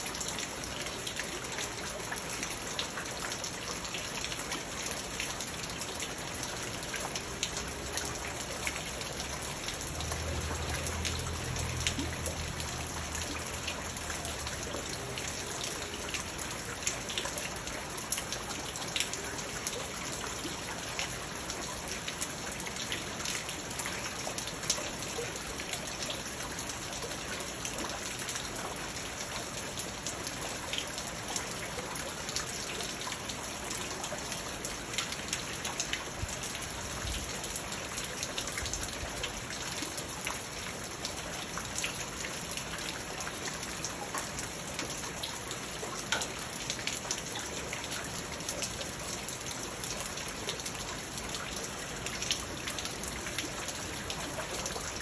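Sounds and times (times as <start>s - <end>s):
rain falling on plants and stones: 0.0s - 55.0s.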